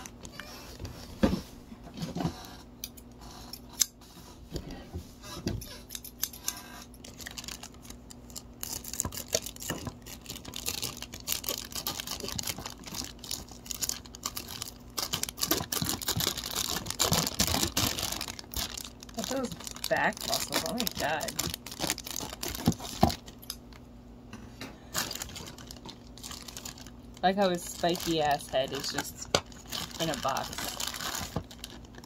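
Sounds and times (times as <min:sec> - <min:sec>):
plastic bags crinkling: 0:06.9 - 0:23.8, 0:24.9 - 0:32.0.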